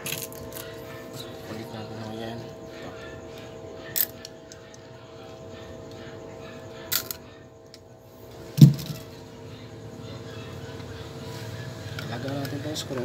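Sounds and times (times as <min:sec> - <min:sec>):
pliers dropping on wood: 0:08.6 - 0:09.1.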